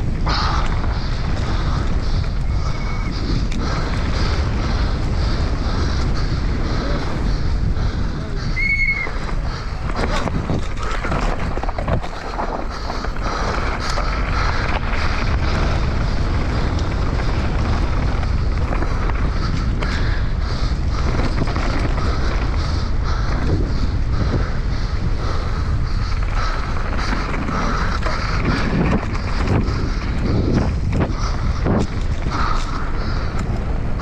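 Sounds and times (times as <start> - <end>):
tyre noise on dirt trail: 0.0 - 34.0
wind buffeting microphone: 0.0 - 34.0
bike clattering over rough ground: 8.8 - 34.0.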